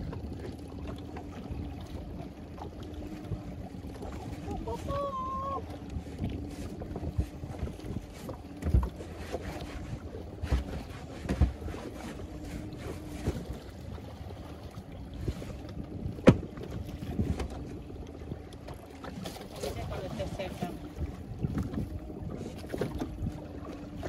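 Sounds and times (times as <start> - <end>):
water slapping boat hull: 0.0 - 24.0
wind on microphone: 0.0 - 24.0.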